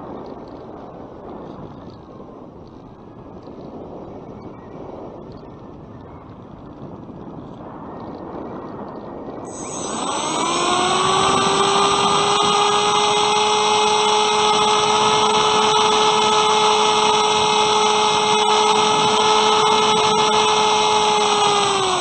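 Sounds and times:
electric motor whine: 9.5s - 22.0s.

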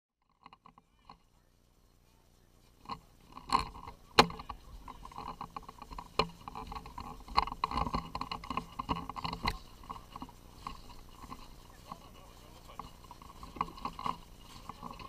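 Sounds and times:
footsteps in snow: 9.4s - 15.0s.

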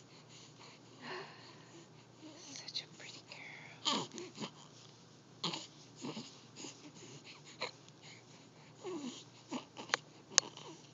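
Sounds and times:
baby cooing and grunting: 3.8s - 4.7s, 5.4s - 6.7s, 8.8s - 10.9s.

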